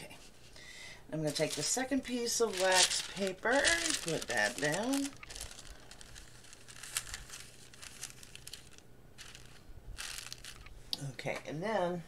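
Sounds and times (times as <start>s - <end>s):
wax paper crinkling: 1.2s - 10.7s.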